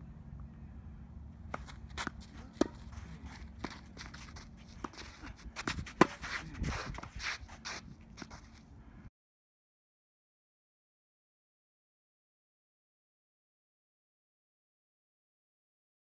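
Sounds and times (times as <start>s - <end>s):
tennis ball bouncing on hard court: 1.5s - 7.3s
tennis ball struck by rackets: 1.5s - 7.8s
footsteps scuffing on court: 1.5s - 8.6s.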